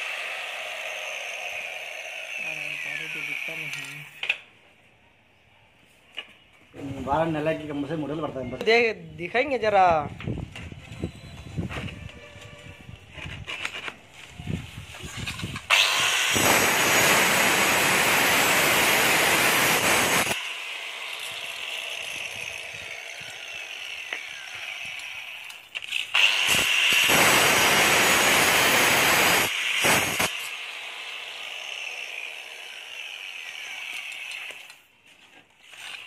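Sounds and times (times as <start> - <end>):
electric stone cutter cutting: 0.0 - 4.3, 15.6 - 34.8.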